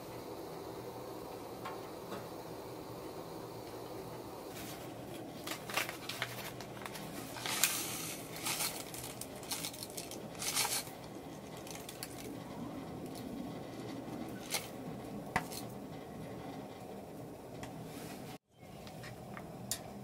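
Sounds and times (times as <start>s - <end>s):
hands crinkling something: 4.6s - 12.4s.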